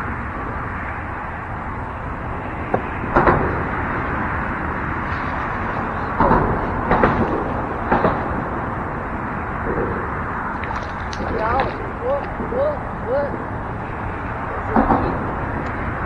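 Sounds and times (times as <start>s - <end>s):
road traffic rushing overhead: 0.0s - 16.0s
sharp knocks and clatters: 6.2s - 8.4s.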